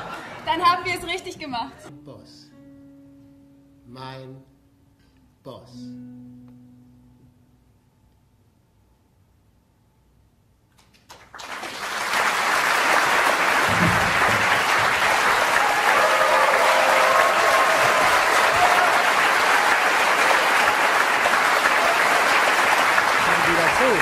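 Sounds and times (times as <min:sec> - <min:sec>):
audience applauding: 0:10.8 - 0:24.0.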